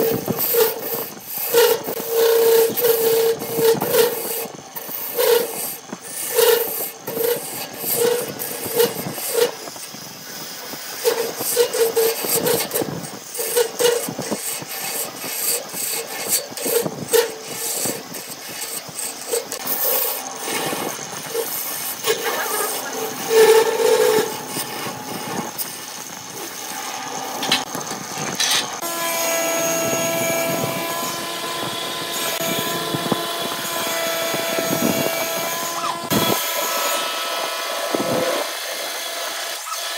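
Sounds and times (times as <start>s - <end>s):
drill humming boring into wood: 0.0s - 39.9s
tools scraping wood on a lathe: 0.0s - 39.9s.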